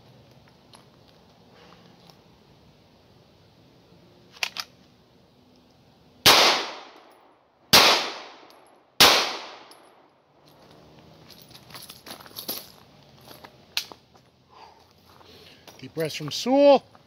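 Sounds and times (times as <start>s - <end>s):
pistol shots: 6.2s - 7.0s, 7.7s - 9.8s.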